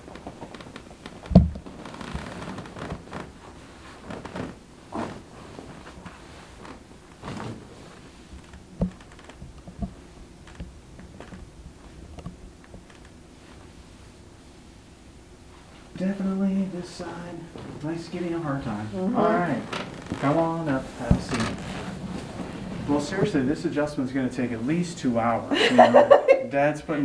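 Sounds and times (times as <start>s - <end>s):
clothes rustling on padded table: 0.0s - 14.6s, 17.0s - 23.5s.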